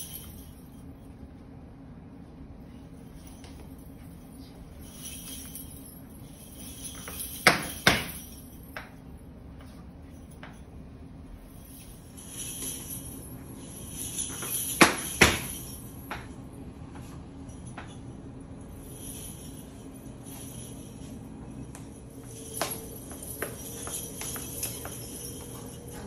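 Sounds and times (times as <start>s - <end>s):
faint steady hum: 0.0s - 26.0s
dancer's shoes striking floor: 6.9s - 9.0s, 14.3s - 16.4s, 21.8s - 26.0s.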